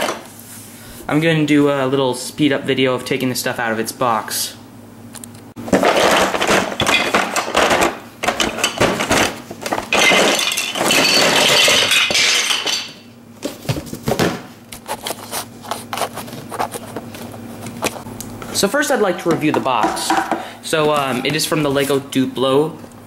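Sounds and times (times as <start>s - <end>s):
plastic bricks rattling and tumbling: 5.6s - 14.3s.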